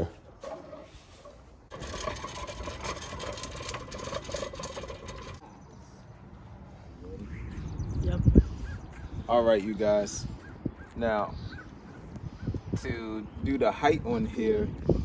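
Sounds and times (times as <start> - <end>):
push reel mower whirring: 1.3 - 5.4.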